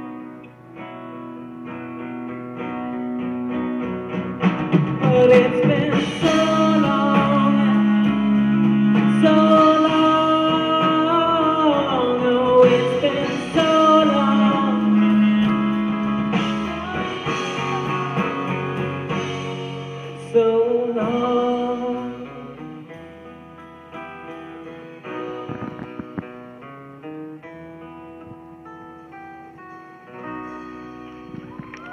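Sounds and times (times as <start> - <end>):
live band with singing: 3.4 - 26.7, 30.0 - 31.9.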